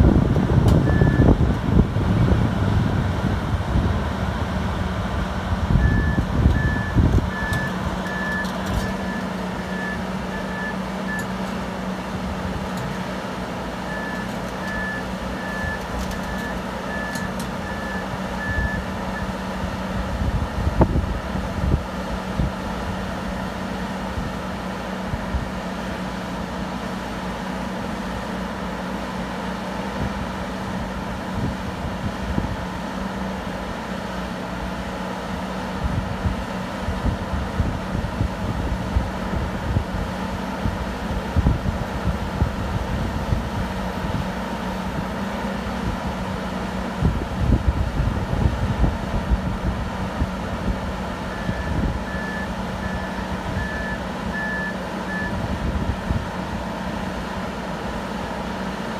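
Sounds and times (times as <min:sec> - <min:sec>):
drill rig engine running: 0:00.0 - 0:58.9
travel alarm beeping: 0:00.7 - 0:01.4, 0:05.7 - 0:11.4, 0:13.8 - 0:19.3, 0:51.3 - 0:55.4.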